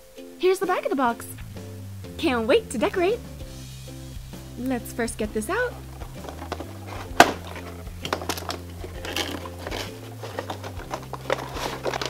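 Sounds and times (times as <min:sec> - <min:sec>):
cardboard box crinkling: 0:05.9 - 0:12.0
plastic clicks and knocks: 0:06.2 - 0:12.0.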